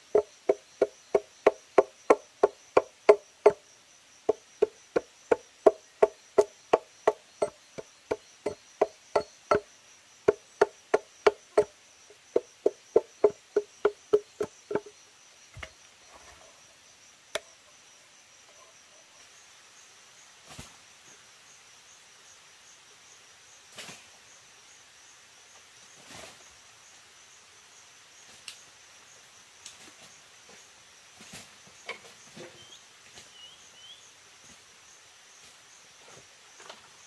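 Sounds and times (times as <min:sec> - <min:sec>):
high insect buzz: 0:00.0 - 0:37.0
tool knocking on wood: 0:00.1 - 0:03.6, 0:04.3 - 0:09.6, 0:10.3 - 0:14.9.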